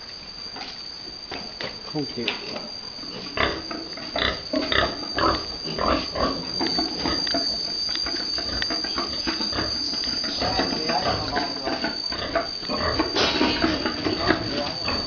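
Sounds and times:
pigs grunting: 3.2s - 6.5s, 8.5s - 15.0s.

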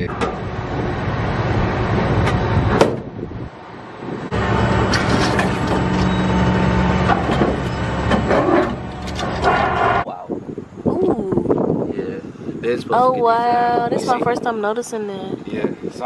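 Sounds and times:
heavy machinery engine humming: 0.0s - 10.0s.

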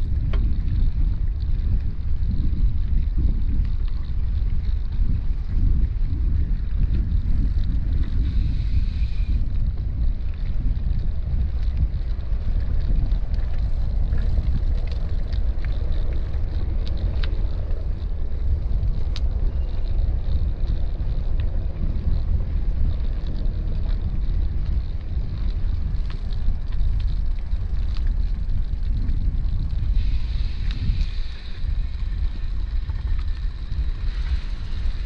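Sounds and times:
small clicks and ticks: 0.0s - 35.0s
wind buffeting microphone: 0.0s - 35.0s
tyres hissing on wet path: 8.2s - 9.5s, 29.8s - 35.0s.

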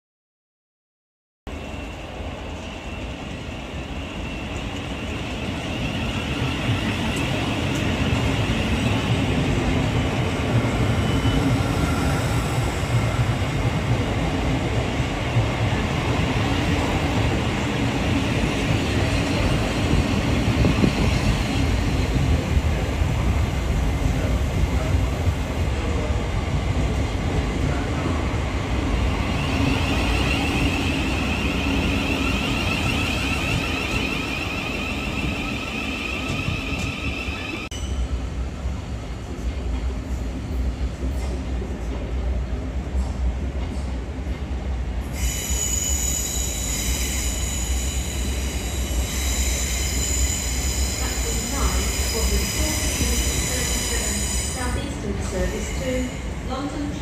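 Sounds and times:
electric train rumbling: 1.5s - 57.0s.

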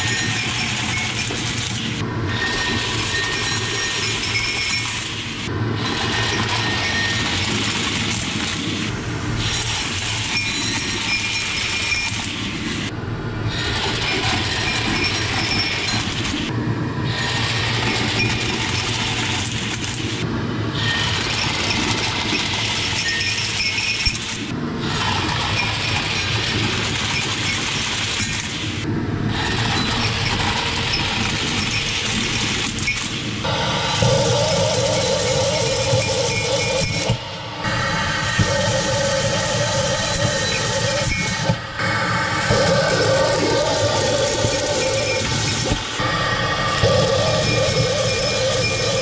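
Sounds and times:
vacuum cleaner running: 33.4s - 49.0s.

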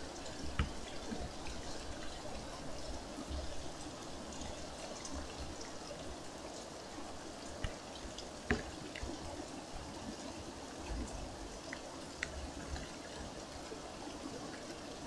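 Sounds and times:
steady rain falling: 0.0s - 15.0s
water dripping: 0.0s - 15.0s.

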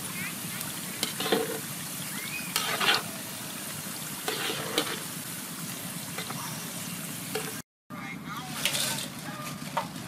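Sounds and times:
oil sizzling: 0.0s - 7.6s
tongs scraping wire skimmer: 1.0s - 1.6s, 2.5s - 3.1s, 4.2s - 5.1s.

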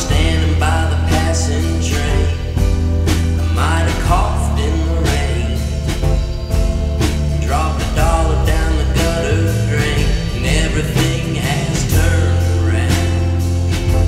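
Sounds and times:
song with bass line and beat: 0.0s - 14.0s.

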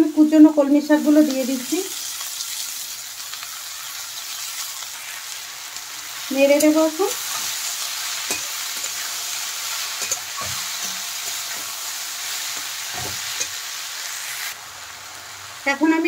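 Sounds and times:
vegetables sizzling in hot oil: 0.0s - 16.0s
spatula scraping a pan: 6.6s - 13.6s.

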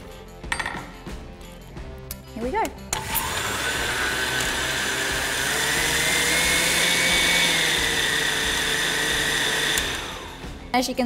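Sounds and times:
blender motor whirring: 2.9s - 10.6s.

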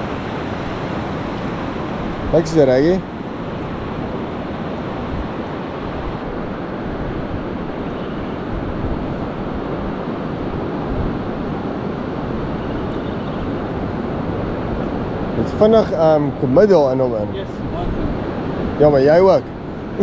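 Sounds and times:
wind rushing over microphone: 0.0s - 20.0s.

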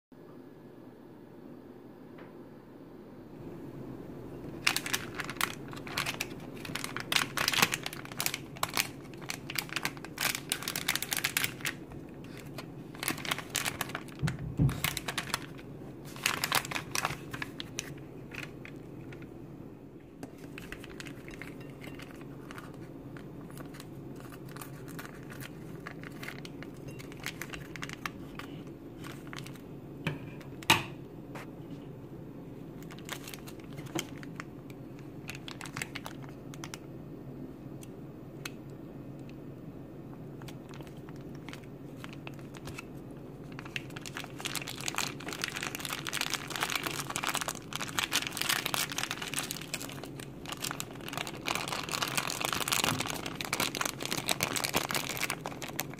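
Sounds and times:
snack packaging crinkling: 4.5s - 19.3s, 20.2s - 29.7s, 32.8s - 36.9s, 40.3s - 55.9s.

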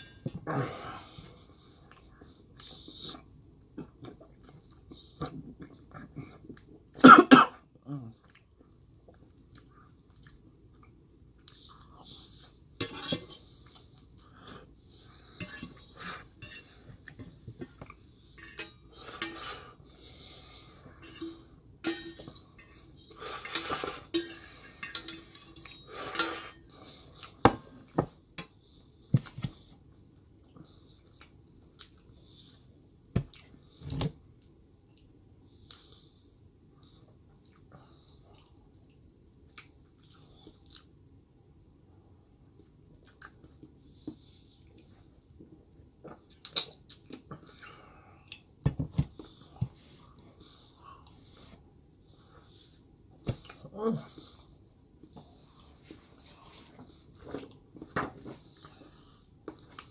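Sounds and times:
loud cough: 7.0s - 7.6s
spoon scraping metal plate: 15.4s - 16.8s.

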